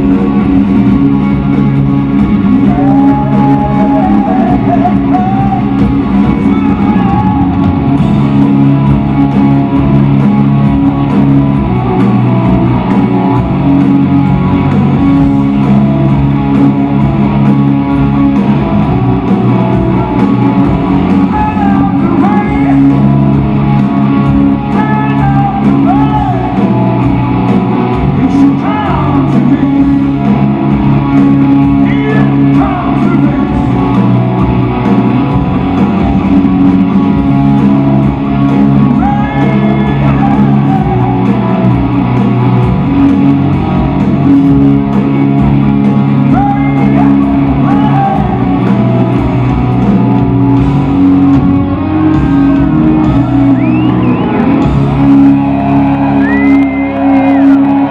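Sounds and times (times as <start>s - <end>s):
electric guitars: 0.0s - 57.9s
man singing lead vocal: 2.7s - 5.7s, 6.4s - 7.6s, 21.2s - 23.0s, 24.7s - 26.6s, 28.2s - 30.2s, 31.7s - 34.1s, 38.9s - 41.2s, 46.2s - 48.7s.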